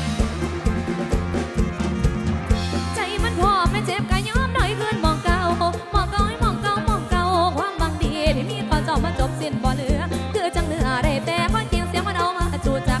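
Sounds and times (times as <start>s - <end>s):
bass: 0.0s - 13.0s
drum kit: 0.0s - 13.0s
woman singing with vibrato: 2.9s - 13.0s.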